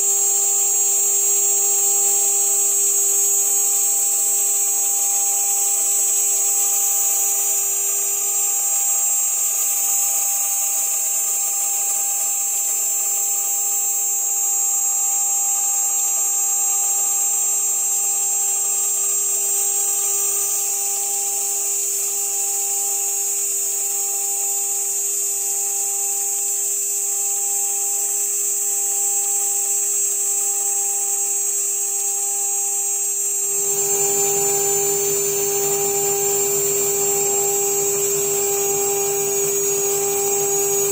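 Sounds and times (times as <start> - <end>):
router spindle high whine: 0.0 - 40.9
lower hum: 33.5 - 40.9.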